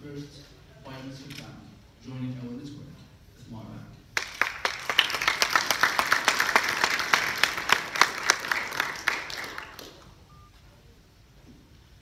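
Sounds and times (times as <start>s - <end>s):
audience applauding: 4.2s - 10.1s.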